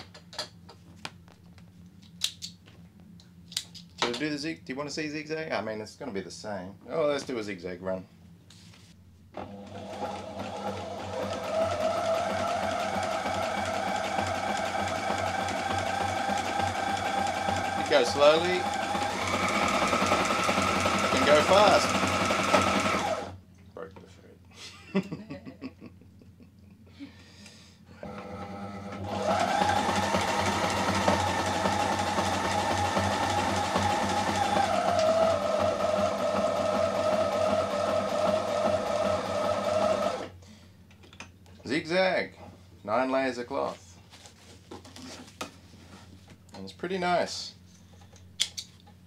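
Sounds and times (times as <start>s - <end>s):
sewing machine stitching: 9.4s - 23.4s, 28.0s - 40.3s.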